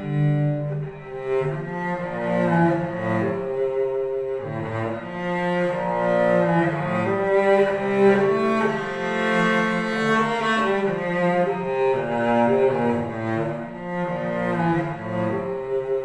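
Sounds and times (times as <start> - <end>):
solo cello bowed melody: 0.0 - 16.0.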